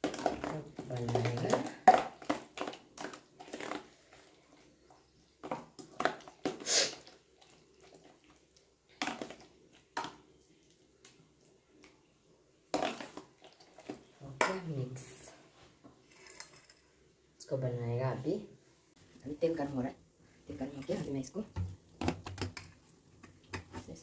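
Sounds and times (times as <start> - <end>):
hand squishing wet batter: 0.0 - 14.6.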